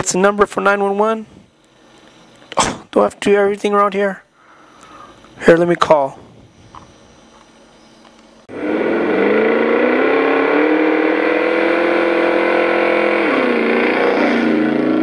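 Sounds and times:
simulated car engine revving: 0:08.5 - 0:15.0.

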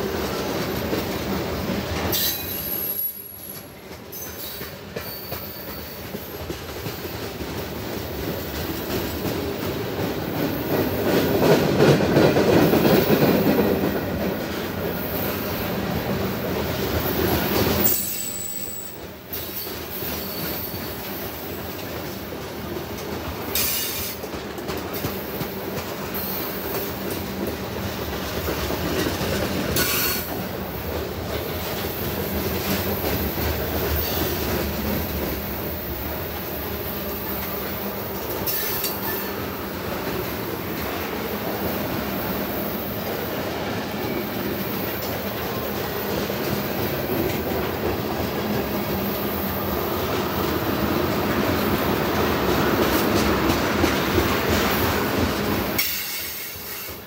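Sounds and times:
train wheels rumbling on rails: 0:00.0 - 0:57.0
wheels clickety-clack: 0:00.0 - 0:57.0
high wheel squeals: 0:02.1 - 0:06.0, 0:17.8 - 0:21.0.

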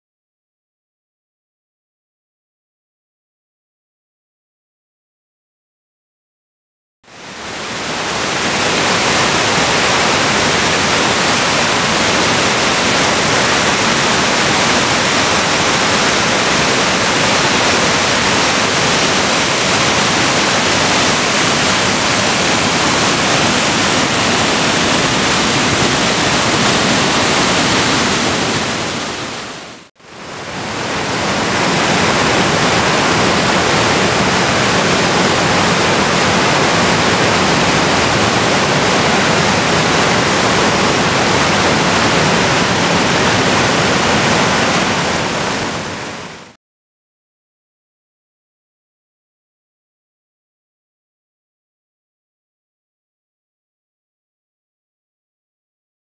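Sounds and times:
whitewater rushing over rock: 0:07.2 - 0:46.6.

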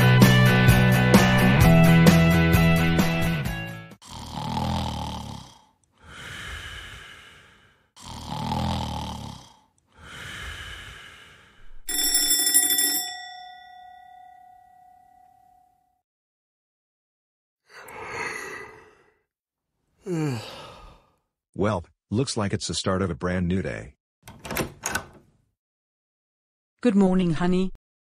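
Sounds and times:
cartoon snoring: 0:04.0 - 0:11.9, 0:17.7 - 0:19.3
alarm clock bell ringing: 0:11.9 - 0:15.7.

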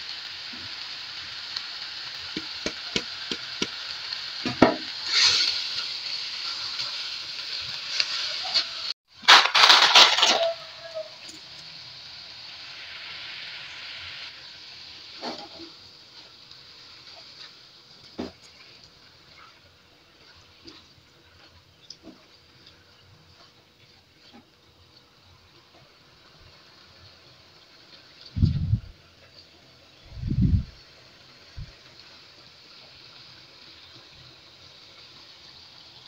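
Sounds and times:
food sizzling in a wok: 0:00.0 - 0:36.0
spatula tapping and scraping pan: 0:02.4 - 0:03.8.

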